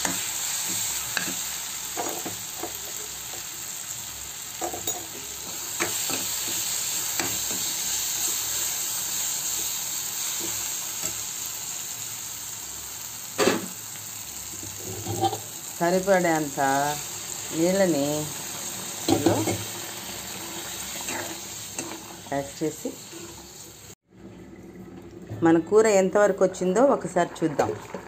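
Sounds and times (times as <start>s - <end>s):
curry sizzling in a pan: 0.0s - 24.0s.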